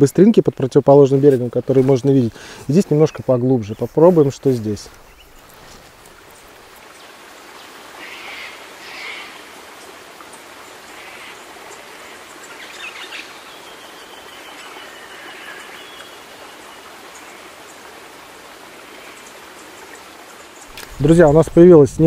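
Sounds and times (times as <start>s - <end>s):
flowing river water: 0.0s - 22.0s
faint bird calls: 7.6s - 9.6s, 10.7s - 17.7s.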